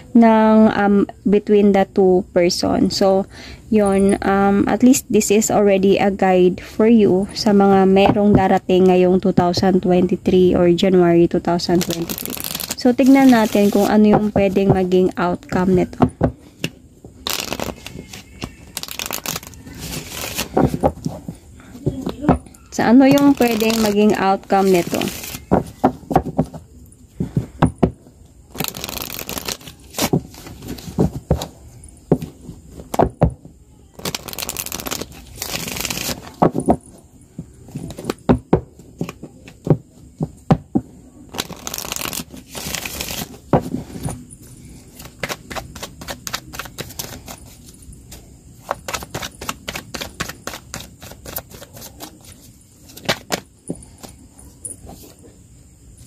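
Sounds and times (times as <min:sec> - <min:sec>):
cards being shuffled: 0:11.6 - 0:14.9, 0:15.6 - 0:22.4, 0:23.0 - 0:26.6, 0:28.5 - 0:31.6, 0:34.0 - 0:36.9, 0:37.7 - 0:38.3, 0:41.3 - 0:54.2.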